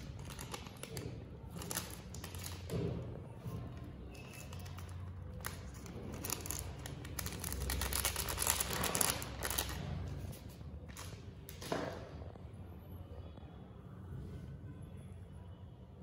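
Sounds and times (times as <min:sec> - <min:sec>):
plastic snack packet crinkling: 0:04.3 - 0:09.8.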